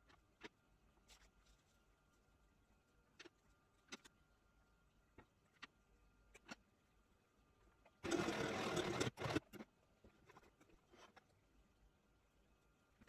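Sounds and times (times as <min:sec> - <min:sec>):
sewing machine stitching: 0:08.0 - 0:09.6.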